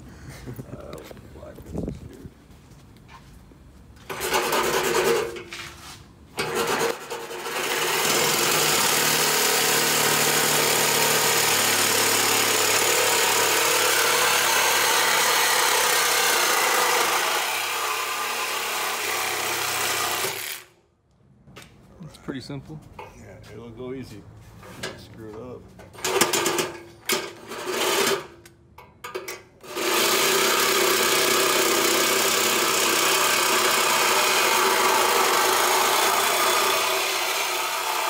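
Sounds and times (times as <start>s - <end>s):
power tool cutting steel pipe: 4.1s - 5.4s, 6.4s - 20.7s, 27.4s - 28.3s, 29.6s - 38.0s.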